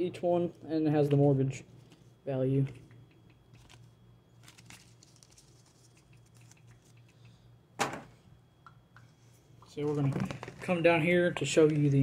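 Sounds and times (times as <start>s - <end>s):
paper cards rustling: 3.5s - 7.0s.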